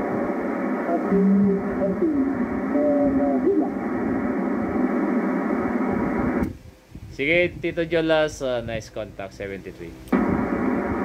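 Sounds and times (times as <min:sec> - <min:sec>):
radio static hiss: 0:00.0 - 0:11.0
garbled voice on radio: 0:00.8 - 0:04.0.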